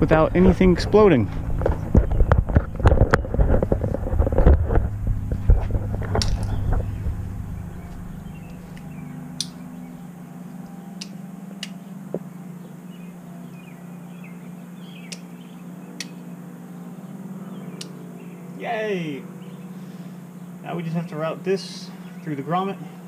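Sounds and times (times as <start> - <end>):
steady low hum: 0.0 - 23.0
switch clicks: 7.8 - 9.6.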